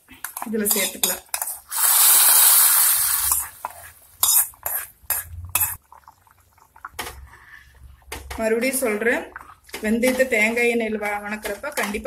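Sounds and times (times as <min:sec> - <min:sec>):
metal spoon scraping pans: 0:00.2 - 0:01.7, 0:03.2 - 0:05.8
hot oil sizzling: 0:00.4 - 0:05.8.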